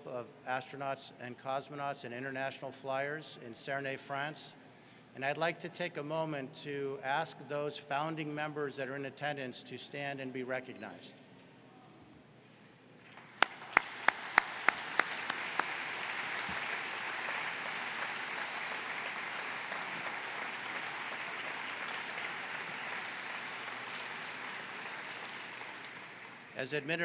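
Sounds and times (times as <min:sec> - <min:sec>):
audience applauding: 0:13.1 - 0:26.6
loud close single claps: 0:13.2 - 0:23.8.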